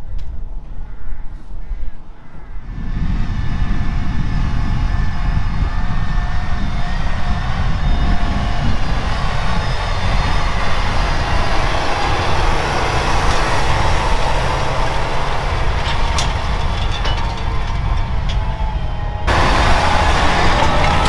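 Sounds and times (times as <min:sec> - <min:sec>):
tractor engine running: 0:02.9 - 0:21.0.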